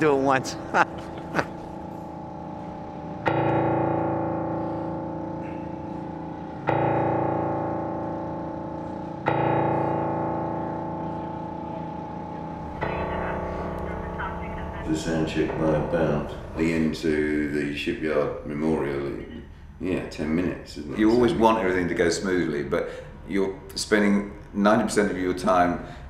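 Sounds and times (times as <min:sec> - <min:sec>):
grand piano chord ringing: 0:00.0 - 0:19.7.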